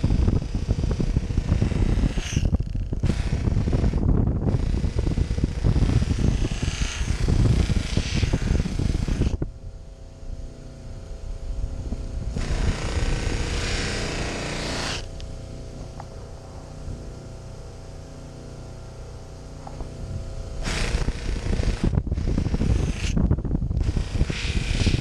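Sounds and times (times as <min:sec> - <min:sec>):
knife grinding on wheel: 0:00.0 - 0:09.4, 0:20.6 - 0:25.0
grinder motor humming: 0:00.0 - 0:25.0.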